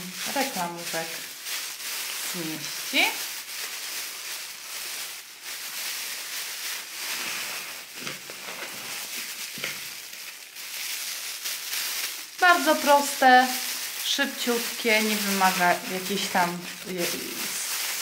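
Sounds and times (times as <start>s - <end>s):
plastic bags crinkling: 0.0s - 18.0s.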